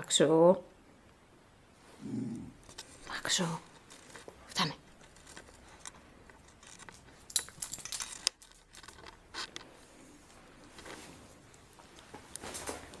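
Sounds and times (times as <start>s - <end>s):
fabric rustling: 3.6s - 13.0s.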